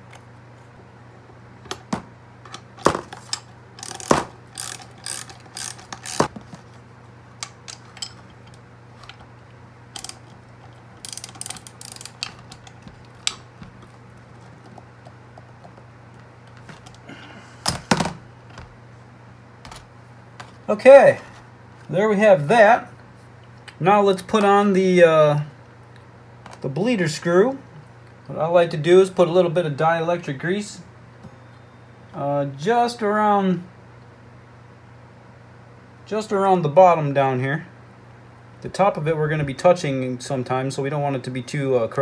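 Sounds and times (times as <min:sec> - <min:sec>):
socket ratchet clicking: 0:03.3 - 0:06.3, 0:10.0 - 0:10.3, 0:11.0 - 0:13.4.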